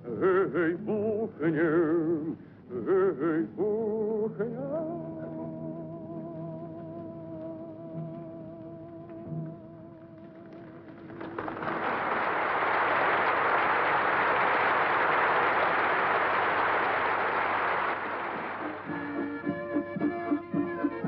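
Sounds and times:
large crowd applauding: 10.2 - 19.5
folk music with accordion: 18.4 - 21.0.

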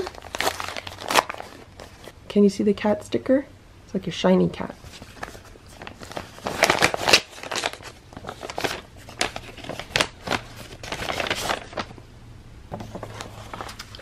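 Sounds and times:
paper rustling and crinkling: 0.0 - 2.1, 4.8 - 12.0, 12.7 - 14.0.

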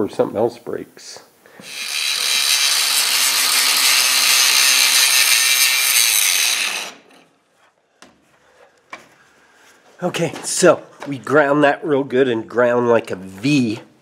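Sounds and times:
angle grinder grinding metal: 1.6 - 7.3.

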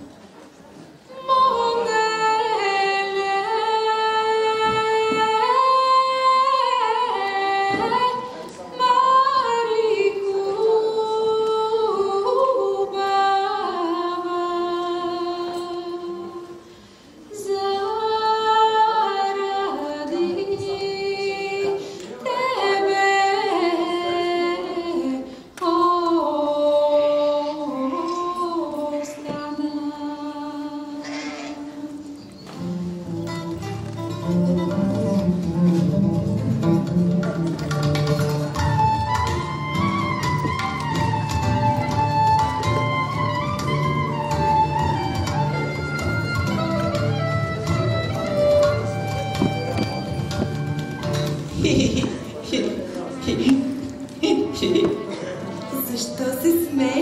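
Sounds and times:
woman singing slow melody: 1.1 - 16.6, 17.3 - 32.3.

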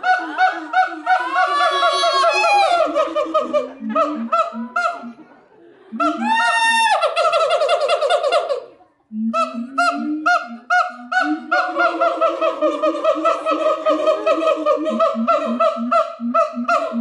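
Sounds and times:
apes singing loud honking hoots: 5.9 - 17.0.

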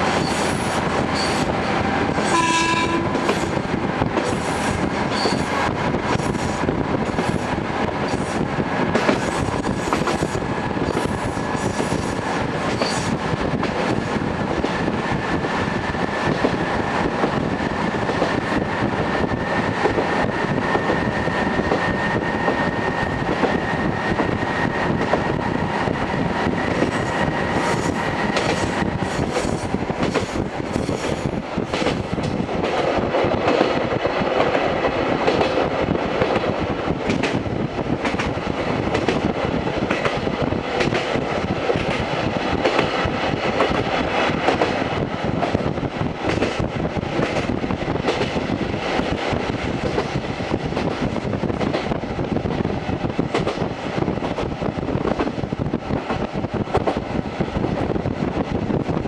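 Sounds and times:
railcar engine and wheels running: 0.0 - 59.0
train horn blast: 2.2 - 3.4.

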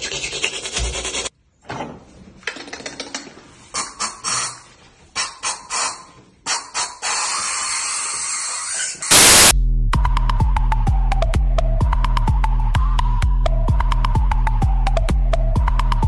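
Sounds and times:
spray hissing: 9.1 - 9.5.

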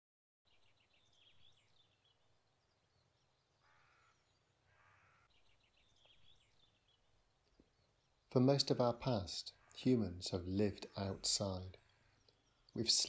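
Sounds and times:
small birds twittering: 0.5 - 13.0
harsh crow-like calls: 3.6 - 5.4, 9.5 - 9.9.

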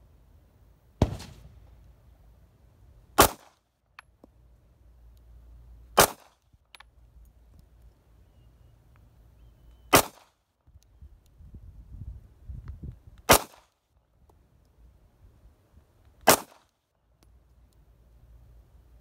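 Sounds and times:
pistol shots: 1.0 - 1.5, 3.2 - 3.5, 6.0 - 6.3, 9.9 - 10.3, 13.3 - 13.6, 16.3 - 16.6.

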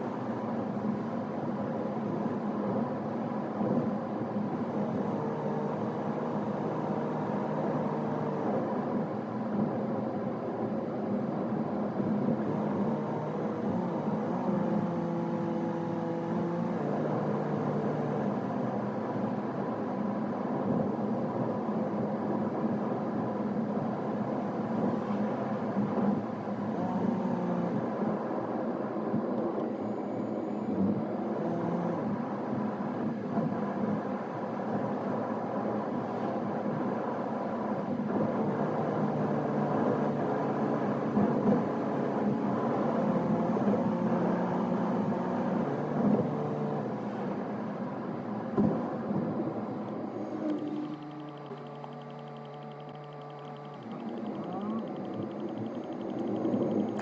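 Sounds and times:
car engine and tyre noise: 0.0 - 57.0
hum shifting in pitch: 50.0 - 57.0.

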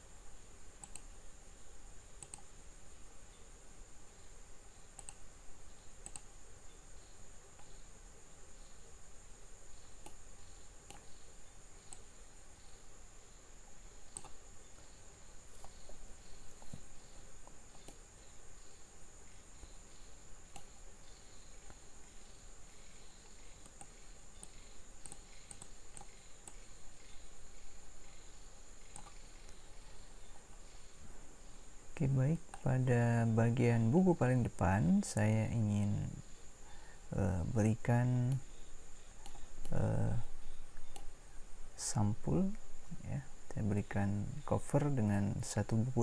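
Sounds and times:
low room hum: 0.0 - 46.0
mouse and keyboard clicks: 0.8 - 1.1, 2.2 - 2.5, 5.0 - 5.2, 6.0 - 6.3, 14.1 - 14.4, 23.6 - 26.6, 28.9 - 29.6.

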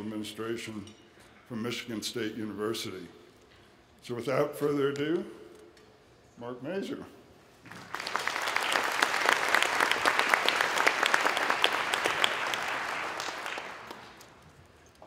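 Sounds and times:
audience applauding: 7.7 - 14.4.

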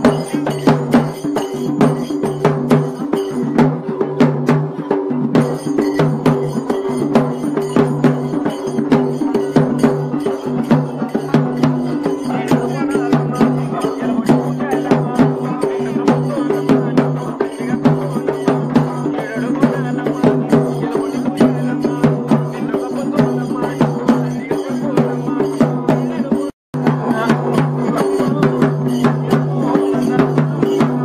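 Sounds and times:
fast steady drumming: 0.0 - 31.0.

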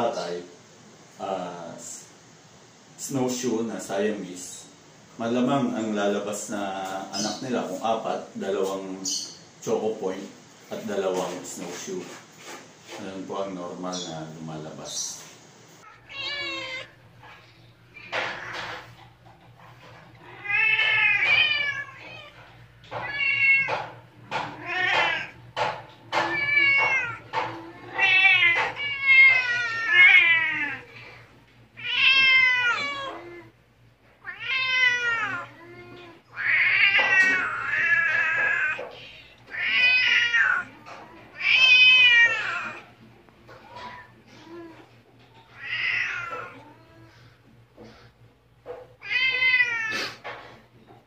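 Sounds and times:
kittens mewing: 15.8 - 47.5, 49.0 - 50.4.

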